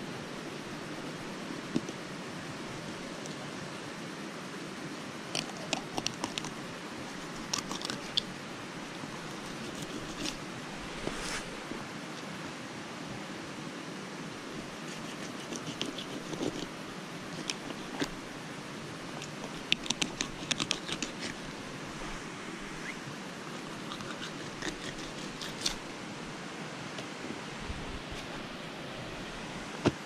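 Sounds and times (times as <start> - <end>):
steady hiss: 0.0 - 30.0
knife scrape: 9.4 - 10.4, 23.6 - 25.8
knife crunching through fish bones: 23.7 - 25.8.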